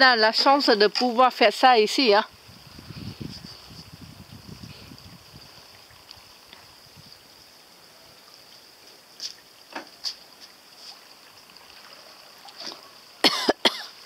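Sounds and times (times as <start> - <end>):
steady high-pitched hiss: 0.0 - 14.0
water splashing: 5.2 - 14.0.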